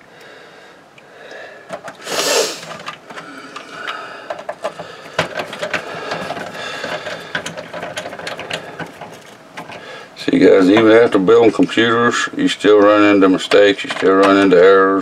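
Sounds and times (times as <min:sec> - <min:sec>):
screwdriver clicking and scraping: 0:01.7 - 0:09.8.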